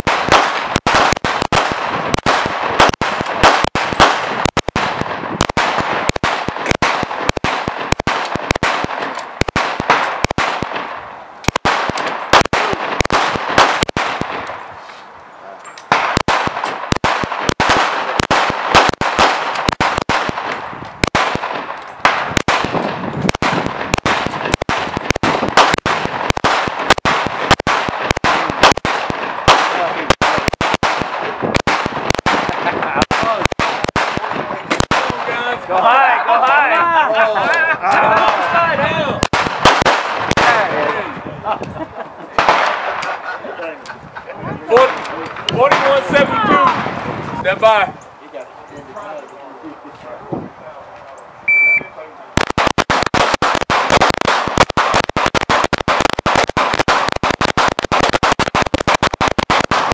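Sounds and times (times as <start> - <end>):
rapid handgun fire: 0.0 - 14.5, 15.9 - 35.4, 39.2 - 40.8, 42.4 - 43.2, 52.4 - 59.9.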